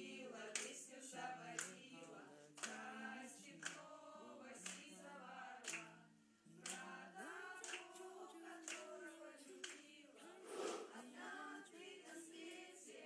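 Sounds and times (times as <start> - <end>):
women singing unaccompanied: 0.0 - 13.0
hand claps keeping time: 0.5 - 0.8, 1.6 - 2.9, 3.6 - 3.9, 4.6 - 5.0, 5.6 - 5.9, 6.6 - 7.0, 7.6 - 10.0.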